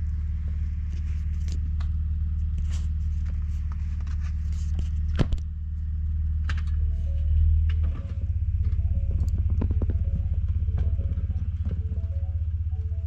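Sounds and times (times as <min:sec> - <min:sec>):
truck engine at low revs: 0:00.0 - 0:13.0.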